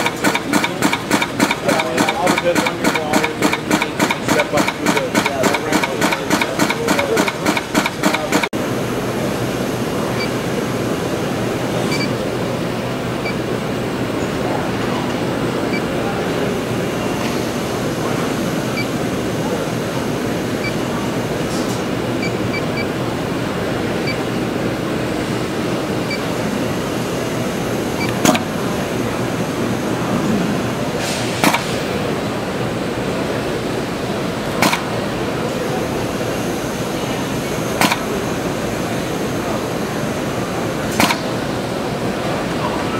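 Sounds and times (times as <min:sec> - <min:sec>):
pneumatic cutter snapping: 0:00.0 - 0:08.5, 0:28.0 - 0:28.5, 0:31.0 - 0:32.0, 0:34.5 - 0:35.0, 0:37.8 - 0:38.2, 0:40.9 - 0:41.4
steady background noise: 0:00.0 - 0:42.9.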